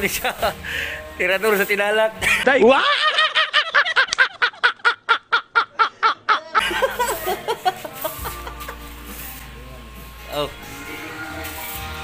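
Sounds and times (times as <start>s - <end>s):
man laughing hard: 2.2s - 8.8s.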